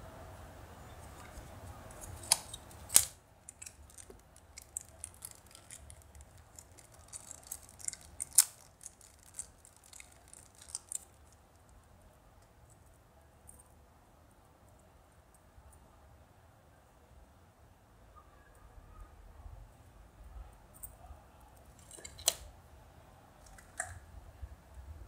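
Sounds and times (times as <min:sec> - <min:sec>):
sharp plastic snaps: 0:01.9 - 0:11.1
plastic packaging crinkling: 0:01.9 - 0:11.4.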